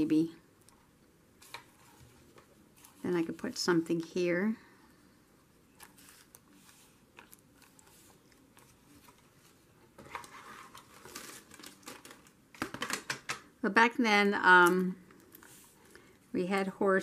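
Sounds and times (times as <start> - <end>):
paper and packaging crinkling: 5.8 - 13.1.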